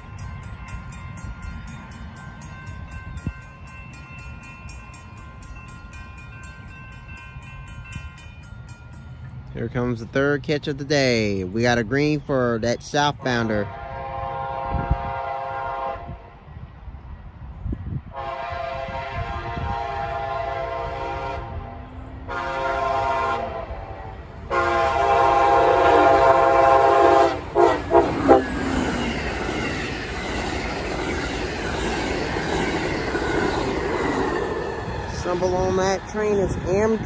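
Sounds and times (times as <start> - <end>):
train coaches rumbling past: 0.0 - 37.0
locomotive air horn: 13.6 - 16.3, 18.1 - 28.6.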